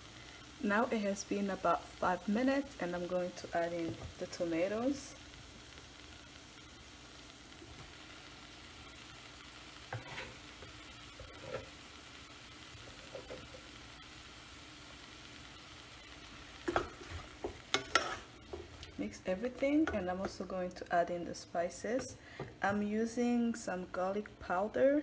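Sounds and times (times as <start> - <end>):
vegetables sizzling in a saucepan: 0.0 - 25.0
spoon stirring and scraping pan: 9.8 - 11.8, 12.7 - 13.8, 16.6 - 20.6.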